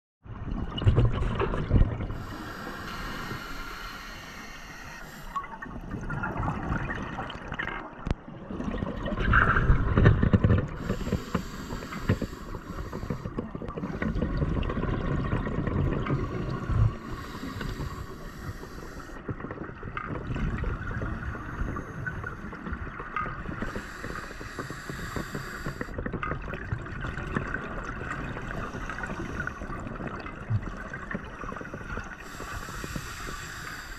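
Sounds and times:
exhale bubbling rumble: 0.3 - 33.9
regulator hiss on inhale: 2.1 - 5.7, 10.8 - 14.4, 16.0 - 19.2, 21.0 - 22.6, 23.5 - 26.0, 28.5 - 29.7, 31.3 - 33.9.

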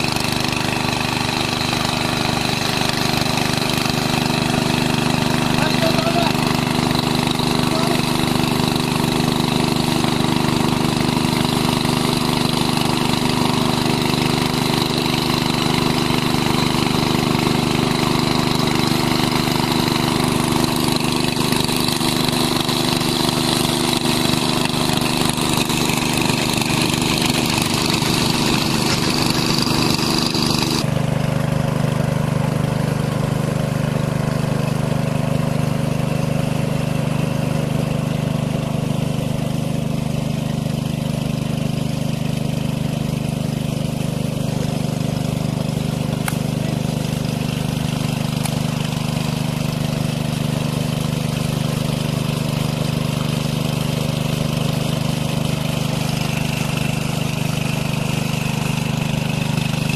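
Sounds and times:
small petrol engine running: 0.0 - 59.9.

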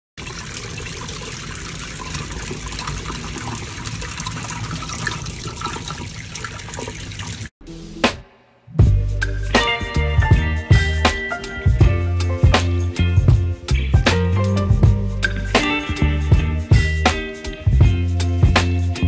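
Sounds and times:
water rushing in aquarium tank: 0.2 - 7.5
music: 7.6 - 19.0.

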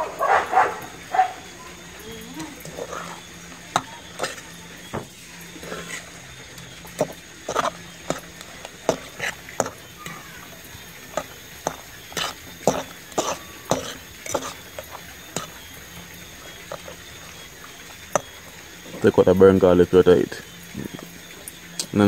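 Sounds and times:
metal spoon scraping metal pot: 5.6 - 10.2, 11.1 - 15.7.

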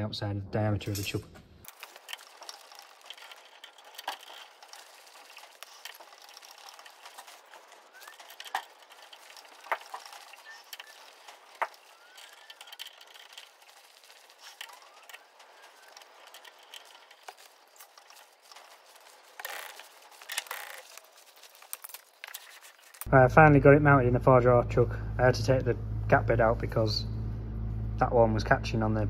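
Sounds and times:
lathe chuck clattering: 0.9 - 23.1.

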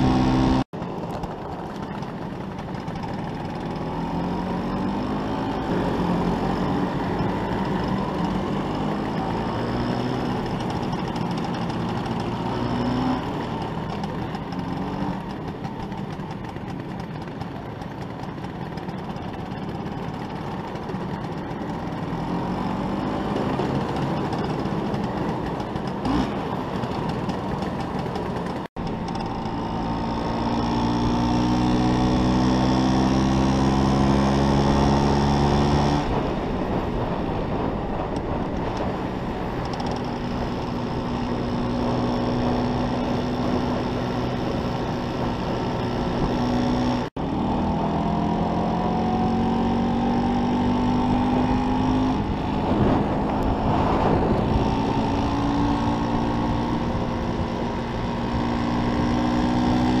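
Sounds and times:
two-stroke scooter engine: 0.0 - 60.0
wind on microphone: 35.9 - 47.1, 48.9 - 60.0.

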